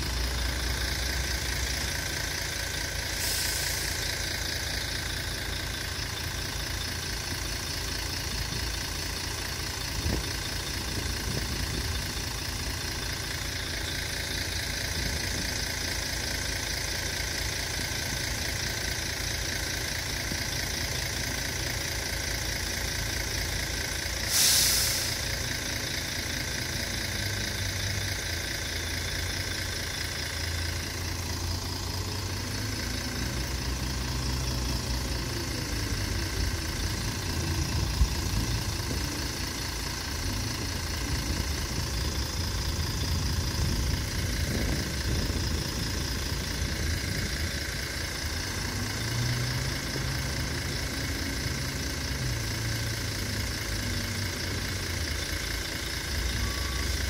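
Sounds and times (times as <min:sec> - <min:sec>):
diesel bus engine idling: 0:00.0 - 0:57.0
compressed air hiss: 0:03.1 - 0:04.1, 0:24.2 - 0:25.4.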